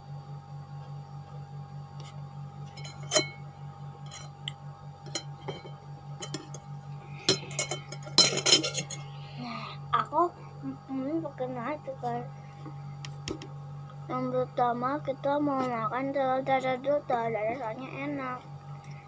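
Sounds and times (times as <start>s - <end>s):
steady low hum: 0.0s - 19.0s
plate clinking: 2.7s - 3.4s, 5.1s - 6.6s, 7.2s - 9.0s.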